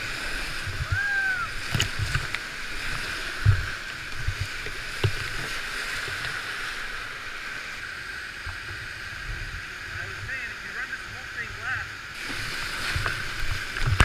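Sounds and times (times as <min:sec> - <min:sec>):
boat and paddle thumping water: 0:00.0 - 0:14.0
whitewater rushing: 0:00.0 - 0:14.0.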